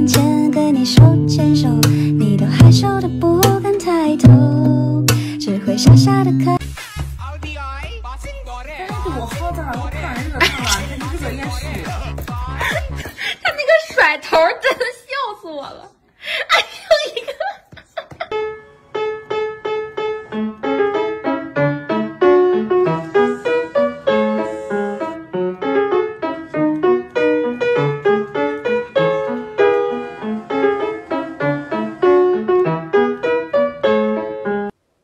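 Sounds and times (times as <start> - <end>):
piano music: 0.0 - 6.6, 8.8 - 13.1, 18.3 - 34.8.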